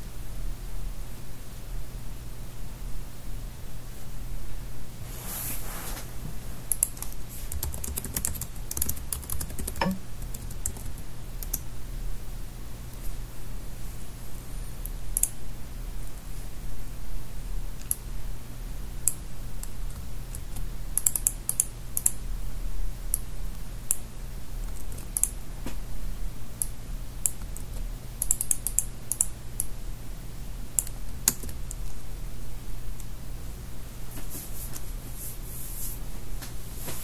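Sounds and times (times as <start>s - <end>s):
steady low hum: 0.0s - 37.0s
computer keyboard clicks: 6.7s - 11.6s, 19.1s - 22.2s, 27.2s - 29.7s, 30.8s - 32.0s.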